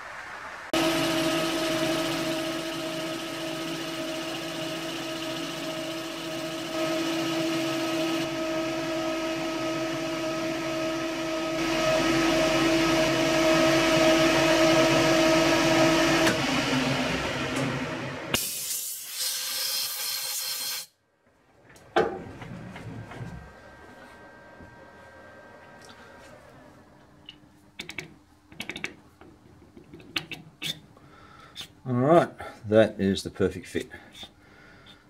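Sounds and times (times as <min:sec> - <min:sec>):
metal lathe whining: 0:00.8 - 0:17.7.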